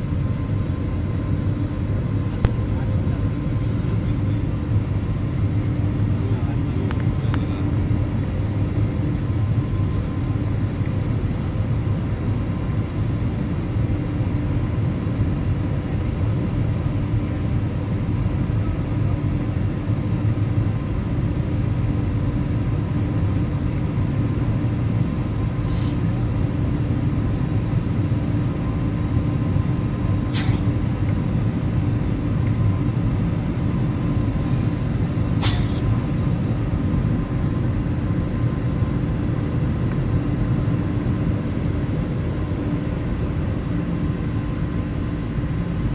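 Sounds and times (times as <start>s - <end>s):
jet engine drone in cabin: 0.0s - 45.9s.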